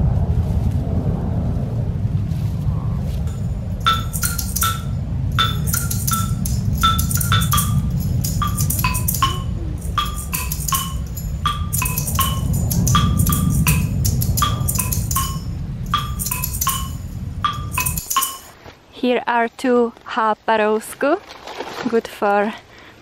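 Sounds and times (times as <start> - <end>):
bright struck notes: 3.3 - 18.6.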